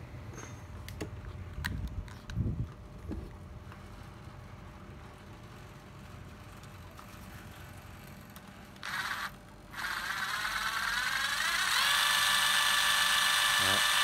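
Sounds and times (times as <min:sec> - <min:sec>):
cordless screwdriver motor whining: 0:08.8 - 0:14.0.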